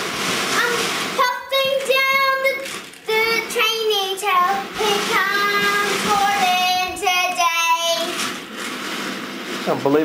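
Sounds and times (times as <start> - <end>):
young child singing: 0.5 - 8.2.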